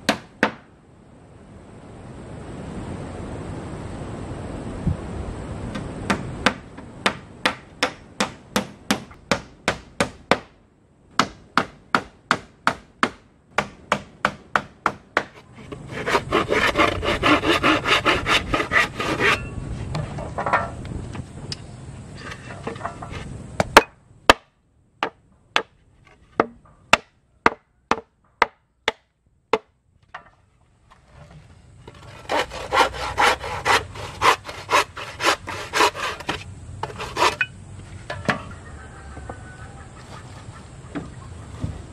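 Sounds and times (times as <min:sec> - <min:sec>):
handsaw cutting wooden board: 0:15.2 - 0:19.4, 0:31.9 - 0:37.5.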